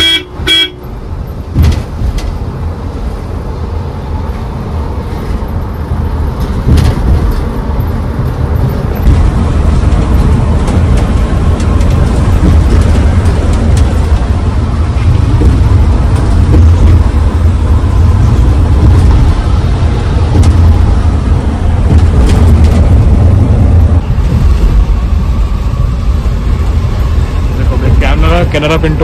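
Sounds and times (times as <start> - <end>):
road and tyre rumble in coach: 0.0 - 29.0.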